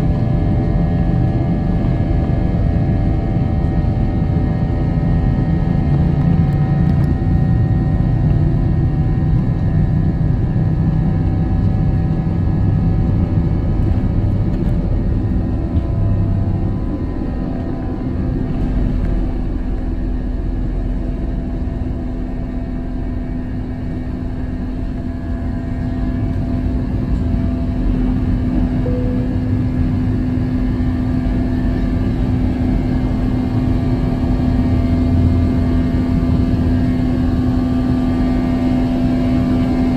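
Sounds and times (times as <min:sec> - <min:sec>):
jet engines at takeoff thrust: 0:00.0 - 0:39.9
takeoff roll rumble: 0:05.4 - 0:34.6.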